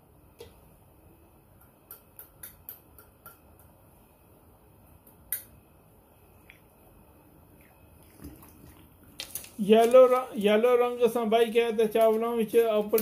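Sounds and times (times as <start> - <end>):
spoon tapping small jar: 1.6 - 3.8.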